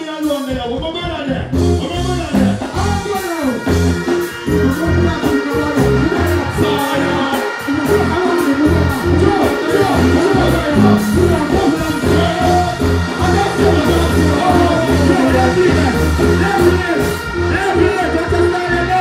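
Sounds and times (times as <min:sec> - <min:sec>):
loud dancehall music: 0:00.0 - 0:19.0.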